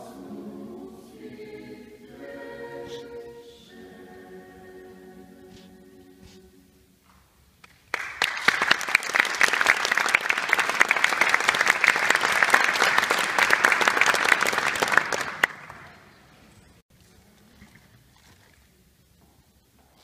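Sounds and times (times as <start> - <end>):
audience applauding: 7.6 - 16.0.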